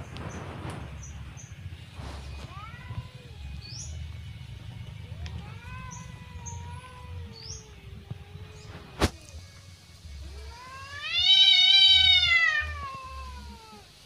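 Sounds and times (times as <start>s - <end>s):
small birds chirping: 0.0s - 9.6s
cat yowling: 2.3s - 3.8s, 5.0s - 9.4s, 10.2s - 14.0s.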